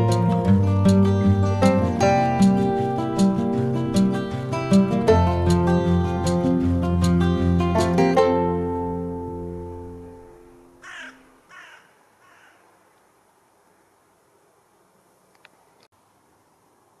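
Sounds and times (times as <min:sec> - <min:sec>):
crow cawing: 0:10.8 - 0:12.8.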